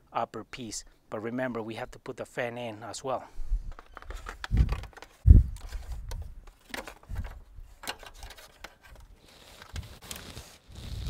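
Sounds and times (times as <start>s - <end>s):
plastic knocks clicks and scraping: 3.7s - 9.8s.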